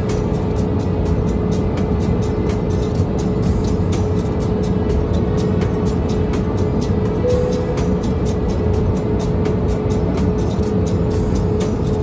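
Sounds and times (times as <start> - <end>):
sharp ticking beat: 0.4 - 11.6
steady held tone: 7.2 - 8.7.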